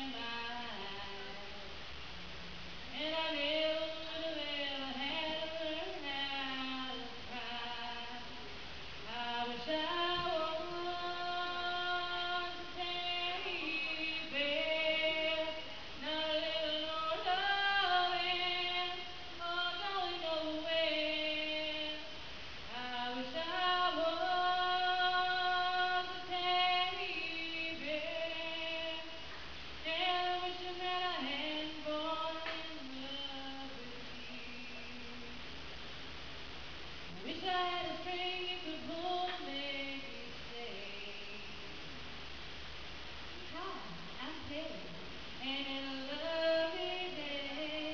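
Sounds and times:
woman singing solo: 0:09.0 - 0:35.4.

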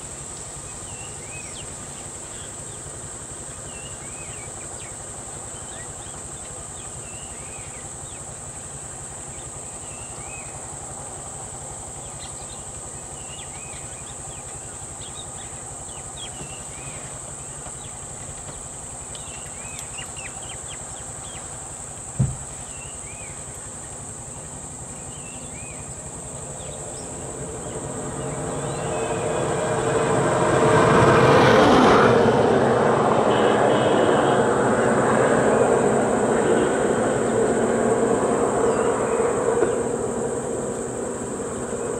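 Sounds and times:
high insect drone: 0:00.0 - 0:41.9
low thump: 0:22.2 - 0:22.4
vehicle passing close by: 0:23.4 - 0:41.9
bird chirps: 0:24.9 - 0:29.9.

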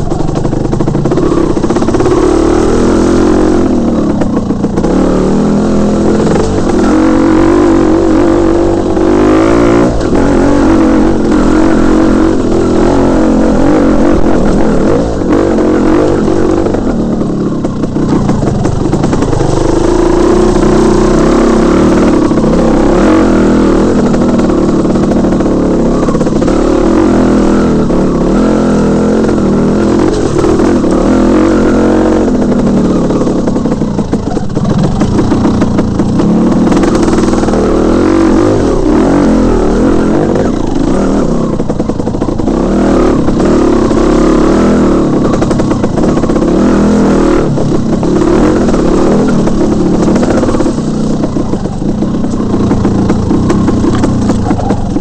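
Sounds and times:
bike rattling over bumps: 0:00.0 - 0:55.0
dirt bike engine running hard: 0:00.0 - 0:55.0.

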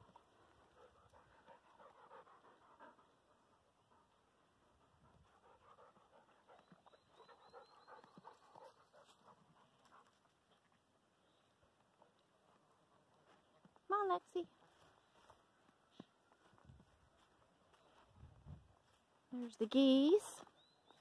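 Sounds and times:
dog panting: 0:00.0 - 0:10.7.

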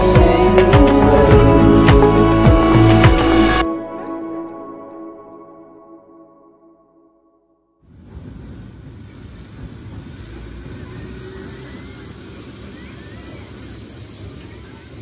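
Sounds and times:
electric train rumbling by: 0:07.8 - 0:15.0
thin wheel squeals: 0:10.2 - 0:14.8.

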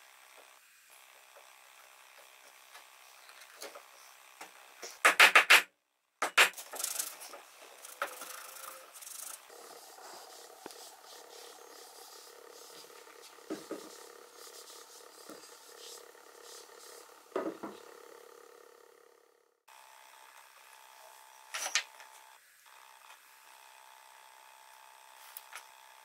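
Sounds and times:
rag rubbing on wood: 0:06.3 - 0:18.0.

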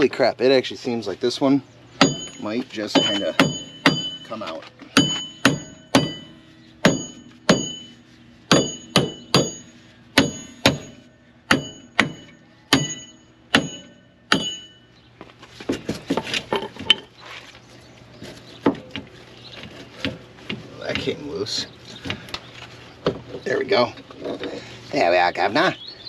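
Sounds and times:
sledgehammer ringing on metal hub: 0:02.0 - 0:14.9.

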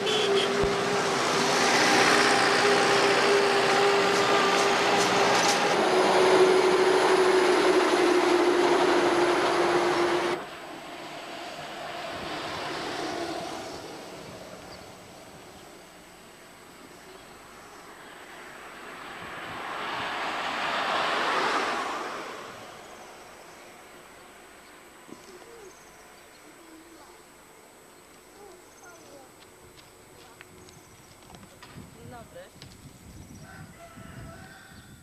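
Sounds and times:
heavy vehicle engine droning: 0:00.0 - 0:26.0
faint passing vehicle: 0:00.0 - 0:27.2.

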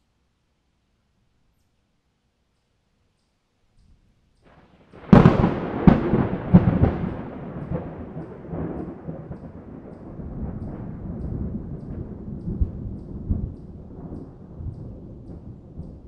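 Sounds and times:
thunder cracks and rumble: 0:04.9 - 0:16.0.

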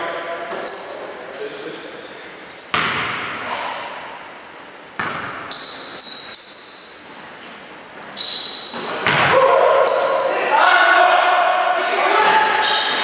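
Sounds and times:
high-pitched squeaks: 0:00.6 - 0:01.6, 0:05.5 - 0:09.1
basketball bouncing on hardwood floor: 0:02.7 - 0:03.4, 0:05.0 - 0:05.4, 0:09.0 - 0:09.3.

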